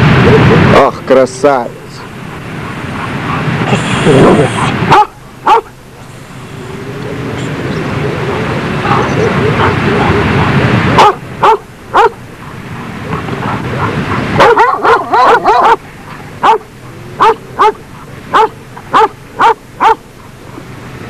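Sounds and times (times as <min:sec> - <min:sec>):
steady noise: 0:00.0 - 0:21.0
dog barking: 0:04.5 - 0:05.8, 0:08.8 - 0:10.2, 0:10.9 - 0:20.1.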